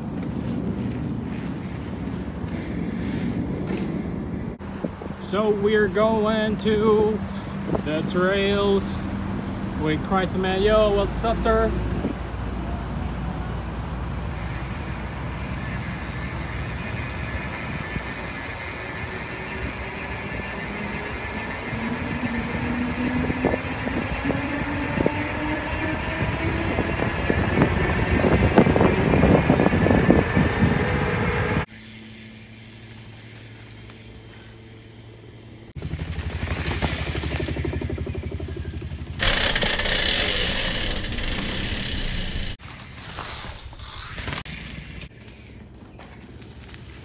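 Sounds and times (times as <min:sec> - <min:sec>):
wind rushing over microphone: 0:00.0 - 0:31.7
steady low hum: 0:00.0 - 0:42.6
bike tyres humming on asphalt: 0:00.0 - 0:47.0.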